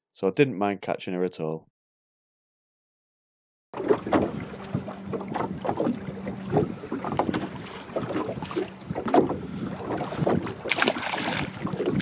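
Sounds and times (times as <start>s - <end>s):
wind buffeting a microphone: 3.9s - 12.0s.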